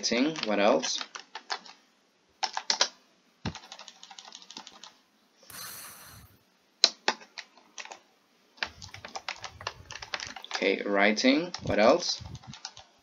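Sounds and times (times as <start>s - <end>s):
keyboard typing: 0.4s - 1.8s, 2.4s - 2.9s, 3.5s - 6.3s, 8.6s - 10.7s, 11.5s - 13.0s
brief hiss: 5.5s - 6.4s.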